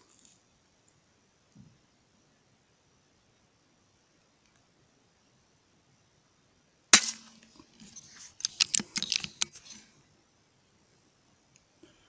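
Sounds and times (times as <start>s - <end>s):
air rifle shot: 7.0s - 7.4s
rifle handling clicks and rattles: 7.0s - 9.8s.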